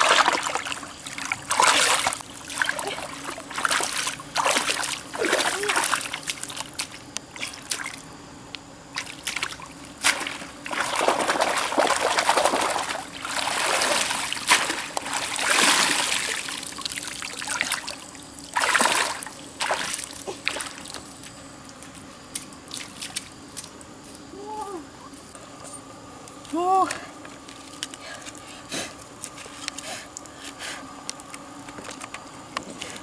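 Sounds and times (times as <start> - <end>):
splashing steps through shallows: 0.0 - 8.0, 9.0 - 16.5
water trickling and splashing: 0.0 - 8.1, 8.9 - 23.8.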